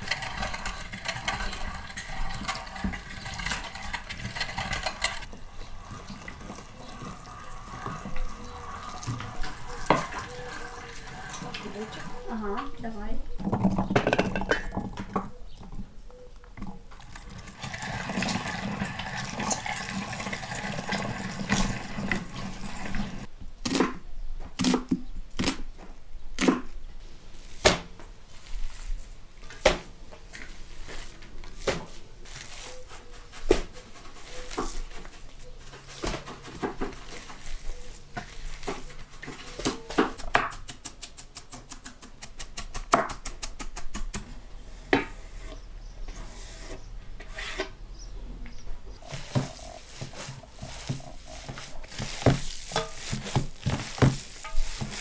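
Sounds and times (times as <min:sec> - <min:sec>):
meat grinder grinding: 0:00.0 - 0:12.1, 0:17.4 - 0:23.3
hands kneading meat in bowl: 0:49.0 - 0:55.0.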